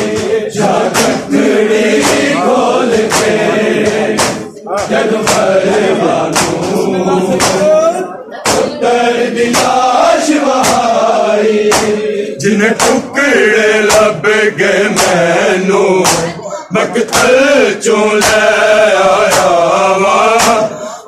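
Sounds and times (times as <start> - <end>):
men chanting a lament: 0.0 - 21.0
hands slapping bare chests: 0.1 - 5.6, 6.3 - 6.8, 7.4 - 7.8, 8.4 - 8.7, 9.5 - 9.8, 10.5 - 11.0, 11.7 - 12.0, 12.8 - 13.0, 14.9 - 15.2, 16.0 - 16.4, 17.1 - 17.4, 19.2 - 19.6, 20.3 - 20.7.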